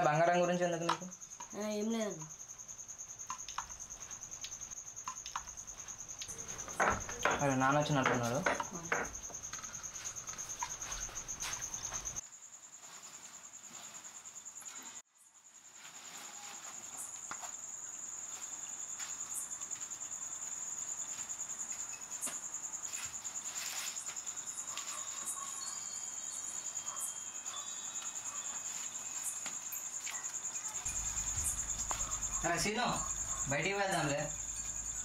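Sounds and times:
crickets chirping: 0:00.0 - 0:35.0.

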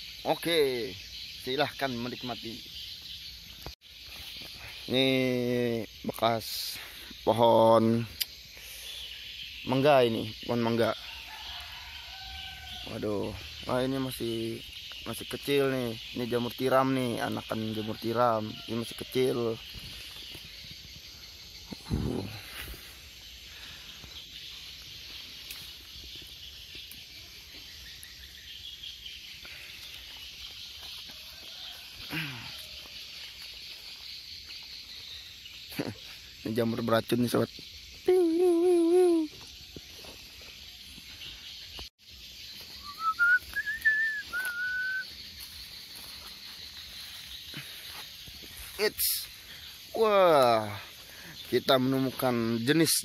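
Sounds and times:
steady high hiss: 0:00.0 - 0:11.0
insects chirping: 0:00.0 - 0:53.0
clear whistle: 0:42.8 - 0:45.1.

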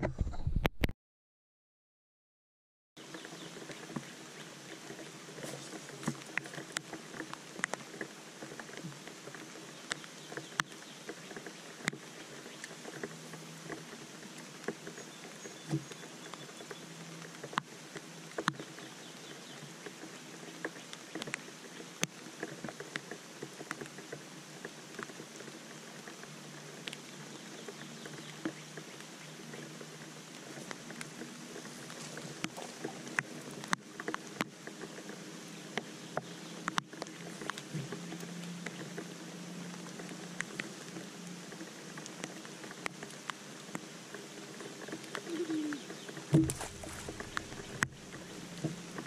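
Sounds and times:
raindrop ticks: 0:03.0 - 0:39.1, 0:39.7 - 0:49.0
rain hiss: 0:03.0 - 0:49.0.

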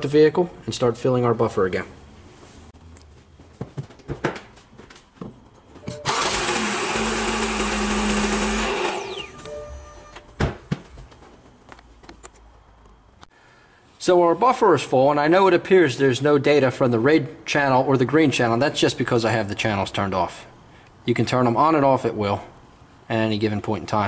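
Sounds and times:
car engine starting: 0:05.9 - 0:09.3.

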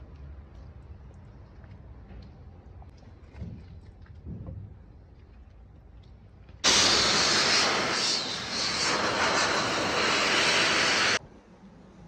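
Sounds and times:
loud steady rushing noise: 0:06.6 - 0:11.2.

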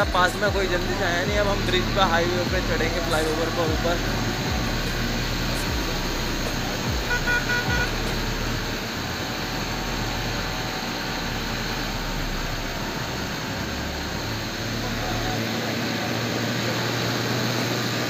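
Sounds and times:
horn toot: 0:00.0 - 0:09.9
motorcycle engine running: 0:00.0 - 0:18.0.

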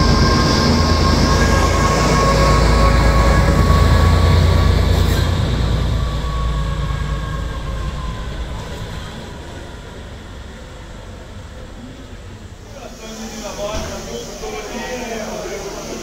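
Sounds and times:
high whine: 0:00.0 - 0:11.2
diesel locomotive engine rumble: 0:00.0 - 0:16.0.

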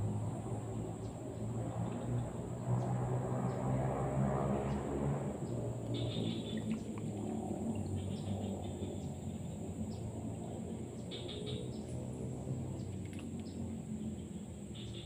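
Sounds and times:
high insect drone: 0:00.0 - 0:15.0
bird chirps: 0:06.0 - 0:07.1, 0:11.0 - 0:12.0, 0:14.2 - 0:15.0.

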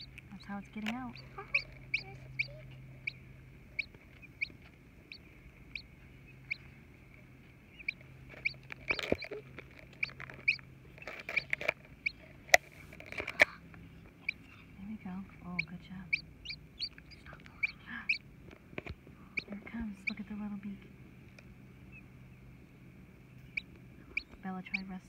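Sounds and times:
baby chick peeping: 0:00.0 - 0:25.0.

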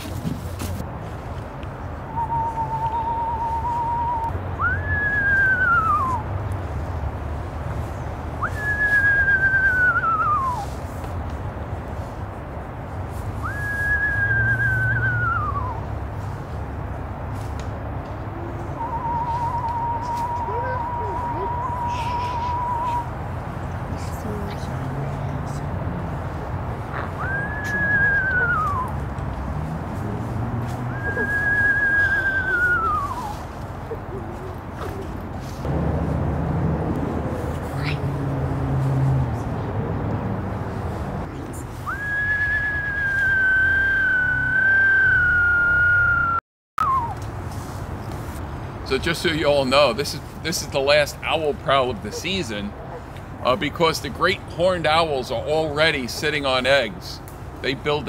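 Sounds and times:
person whistling owl call: 0:02.1 - 0:06.3, 0:08.4 - 0:10.7, 0:13.4 - 0:15.9, 0:18.5 - 0:23.2, 0:27.2 - 0:29.0, 0:30.9 - 0:33.5, 0:41.8 - 0:47.2.

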